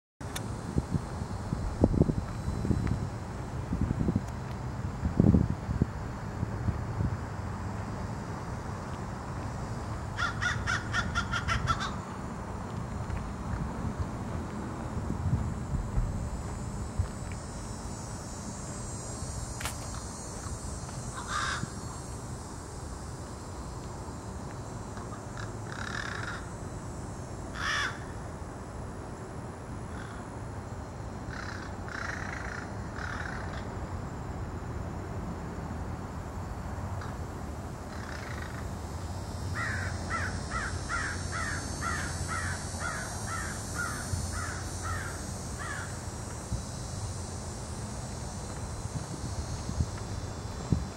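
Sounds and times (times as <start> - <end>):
insects droning: 0.2 - 50.9
crow cawing: 10.2 - 12.0, 21.2 - 21.7, 25.4 - 26.5, 27.6 - 28.1, 29.9 - 30.2, 31.3 - 33.6, 39.6 - 45.9.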